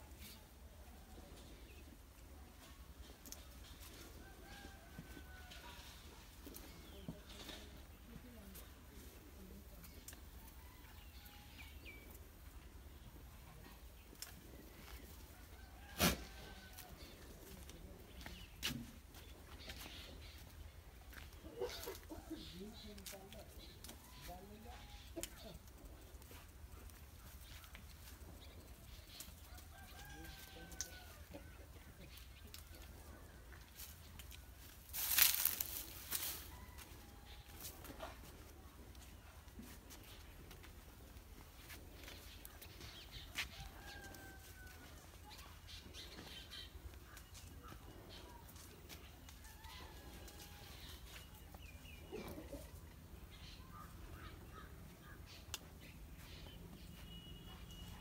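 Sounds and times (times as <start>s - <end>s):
chickens clucking: 19.6s - 28.9s.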